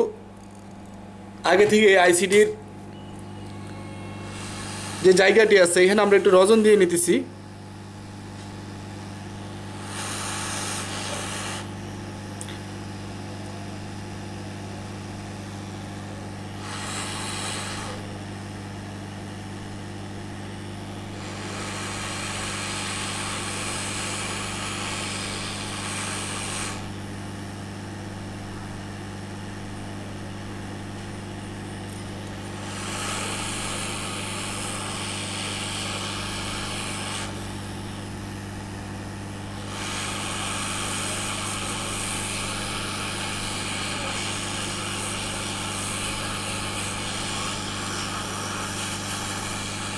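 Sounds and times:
steady hum: 0:00.0 - 0:49.9
hot air gun hissing: 0:03.9 - 0:07.0, 0:09.6 - 0:11.8, 0:16.5 - 0:18.2, 0:21.0 - 0:27.0, 0:32.5 - 0:37.9, 0:39.5 - 0:49.9.

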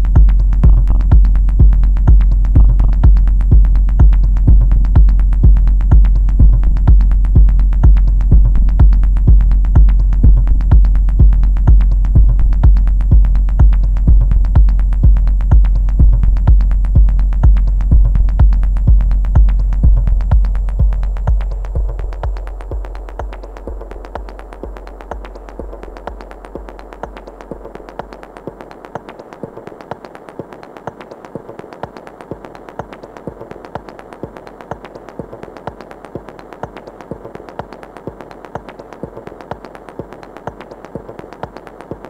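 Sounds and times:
deep synth bass: 0:00.0 - 0:27.8.

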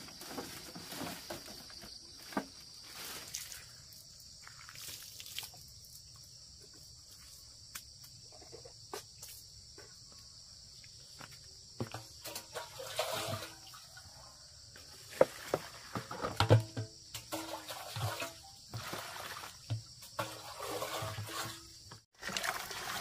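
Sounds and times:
high-pitched insect chorus: 0:00.0 - 0:22.0
water pouring splash: 0:12.5 - 0:13.8, 0:17.3 - 0:19.6, 0:22.2 - 0:23.0
plastic basins knocking: 0:15.1 - 0:19.0.

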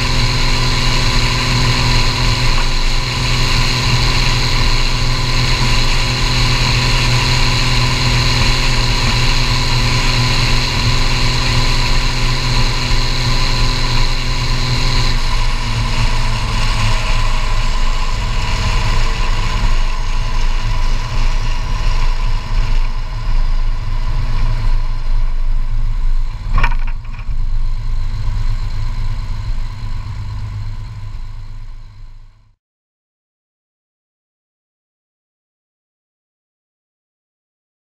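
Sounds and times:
tractor diesel engine running: 0:00.0 - 0:32.5
faint high whine: 0:00.0 - 0:32.6
sharp knock: 0:26.5 - 0:27.3.

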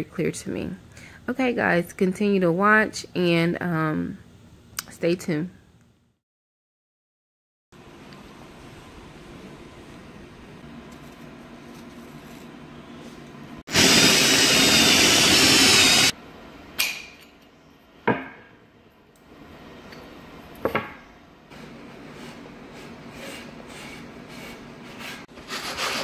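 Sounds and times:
drill hole saw cutting wood: 0:13.7 - 0:16.1.

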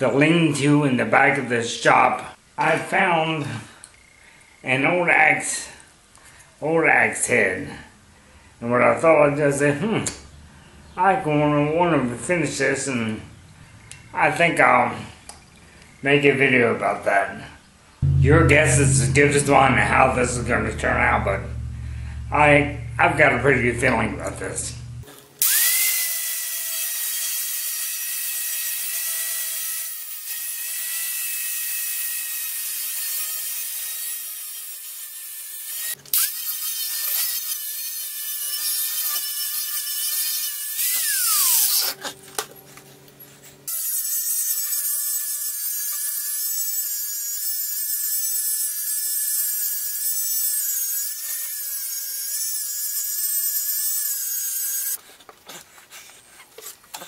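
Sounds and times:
angle grinder grinding metal: 0:43.7 - 0:55.0.

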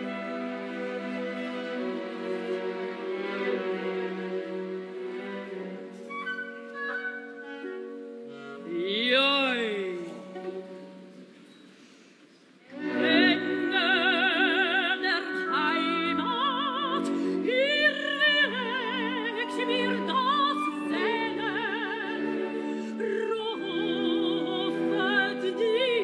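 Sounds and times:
orchestral accompaniment: 0:00.0 - 0:11.4, 0:12.7 - 0:26.0
operatic soprano singing: 0:12.7 - 0:26.0.

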